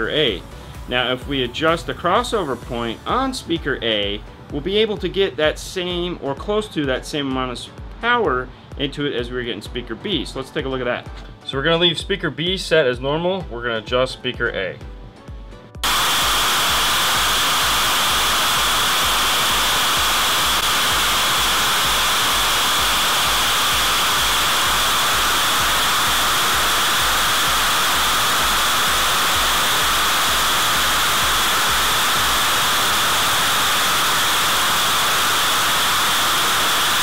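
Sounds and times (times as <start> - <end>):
noise test signal hiss: 15.8 - 37.0.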